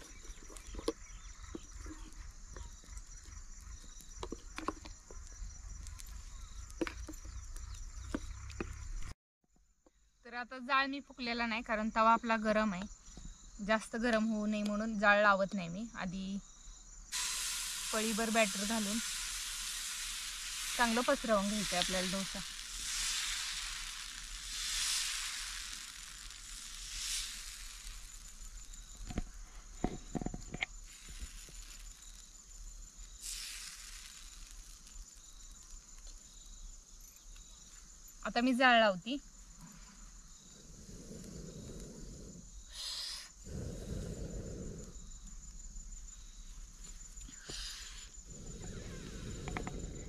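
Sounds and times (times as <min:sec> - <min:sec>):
short sharp hiss: 0:17.1 - 0:28.6, 0:33.2 - 0:35.2, 0:42.7 - 0:43.4
person blowing into fire: 0:17.1 - 0:28.8, 0:33.1 - 0:35.0, 0:40.8 - 0:45.2, 0:47.2 - 0:50.0
batter sizzling on hot iron: 0:17.1 - 0:37.7.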